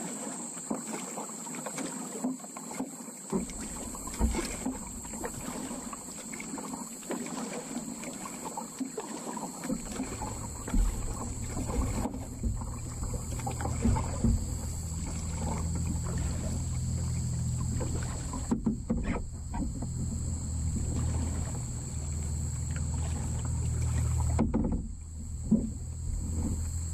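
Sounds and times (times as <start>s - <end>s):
paddle splashing water: 0.0s - 26.9s
paddle knocking hull: 1.8s - 26.9s
high-pitched buzz: 9.8s - 26.9s
low rumble: 9.8s - 26.9s.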